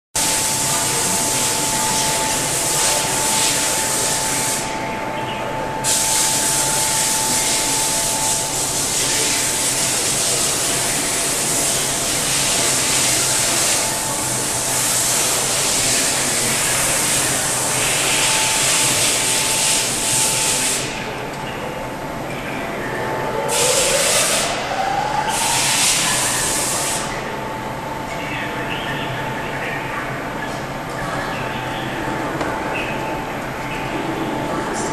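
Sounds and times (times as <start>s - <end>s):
faint steady whine: 0.2s - 34.9s
loud hiss of blowing air: 23.5s - 24.6s, 25.2s - 27.1s.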